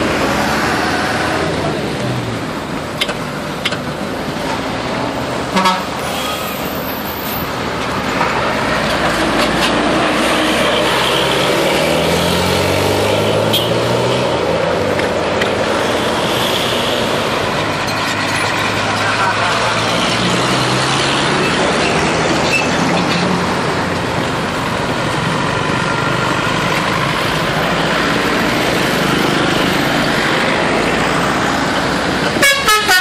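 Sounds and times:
bus engine passing: 0:00.0 - 0:33.0
road traffic: 0:00.0 - 0:33.0
bus horn low notes: 0:05.5 - 0:06.0, 0:32.4 - 0:33.0.

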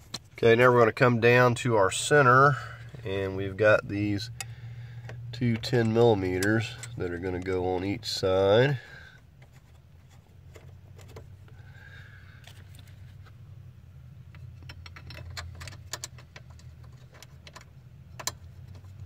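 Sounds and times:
steady low hum: 0:00.0 - 0:19.0
metallic clicks of bolts and tools: 0:04.3 - 0:07.5, 0:14.3 - 0:19.0.

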